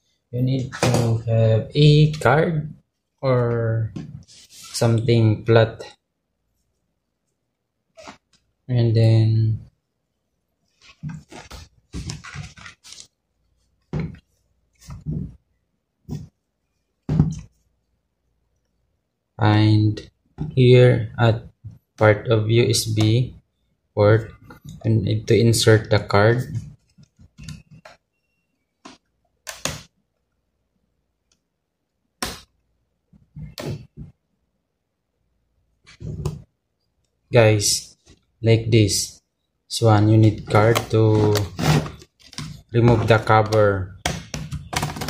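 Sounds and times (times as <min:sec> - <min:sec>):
laptop handling rustling scraping: 0:04.1 - 0:04.8, 0:10.7 - 0:15.4, 0:40.5 - 0:43.3.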